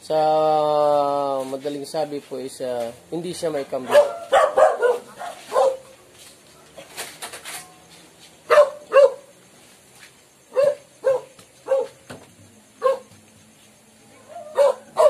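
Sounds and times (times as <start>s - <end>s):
dog barking: 3.8s - 5.9s, 8.5s - 9.3s, 10.5s - 12.0s, 12.8s - 13.1s, 14.2s - 15.0s.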